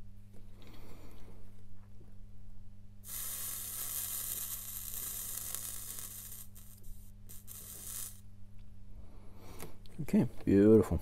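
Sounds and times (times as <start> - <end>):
steady low hum: 0.0 - 11.0
flux sizzling under soldering iron: 3.0 - 8.2.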